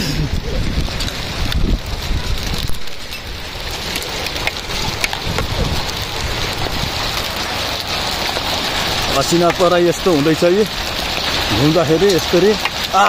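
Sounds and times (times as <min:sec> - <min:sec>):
low rumble: 0:00.0 - 0:09.2
hailstones ticking on hard surfaces: 0:00.0 - 0:13.0
steady hail patter: 0:00.0 - 0:13.0.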